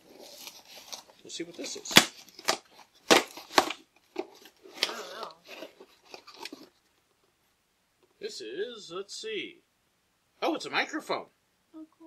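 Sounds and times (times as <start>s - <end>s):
cardboard ripping: 0.0s - 6.7s
cardboard rustling: 0.0s - 7.0s.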